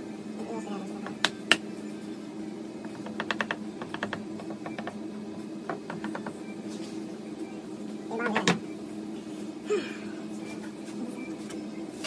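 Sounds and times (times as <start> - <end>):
small hammer tapping wood: 2.9 - 5.0, 5.7 - 6.4.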